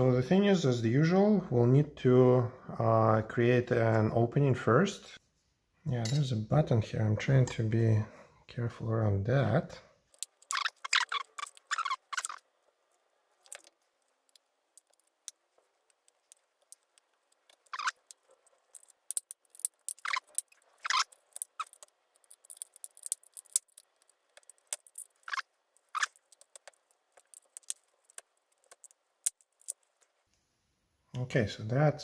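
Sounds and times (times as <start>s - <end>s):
metal pick clicking and scraping: 13.3s - 30.2s.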